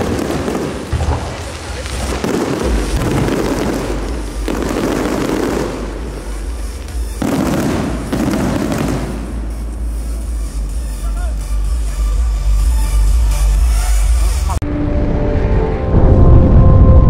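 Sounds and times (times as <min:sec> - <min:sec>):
fireworks bursting and crackling: 0:00.0 - 0:12.2.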